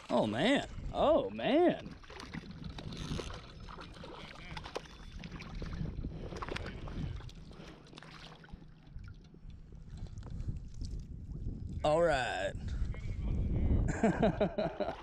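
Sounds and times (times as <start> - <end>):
water sloshing: 1.7 - 11.0.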